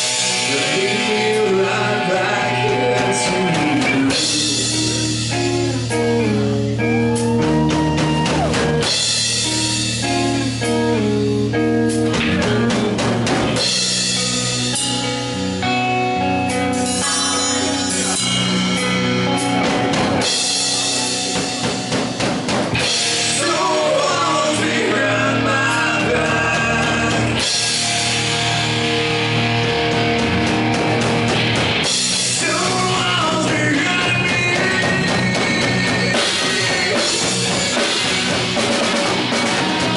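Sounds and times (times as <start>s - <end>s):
bass guitar: 0.0s - 39.9s
drum kit: 0.0s - 39.9s
electric guitars: 0.0s - 39.9s
man singing: 0.2s - 6.0s, 23.2s - 27.6s, 32.3s - 37.5s.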